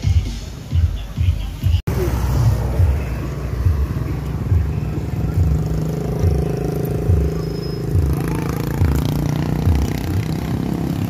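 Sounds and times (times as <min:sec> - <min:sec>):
vehicle engine running: 0:01.7 - 0:11.0.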